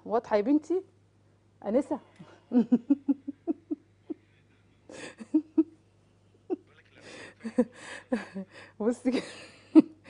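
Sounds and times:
woman's voice: 0.0s - 0.9s, 1.6s - 3.1s, 8.1s - 9.6s
steady low hum: 0.0s - 10.0s.

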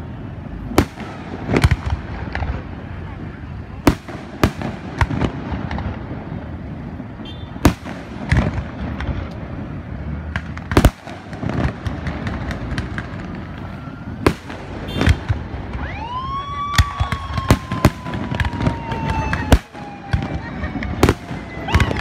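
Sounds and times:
firework bangs: 0.0s - 22.0s
outdoor hubbub: 0.0s - 22.0s
rising firework whistle: 13.4s - 22.0s.

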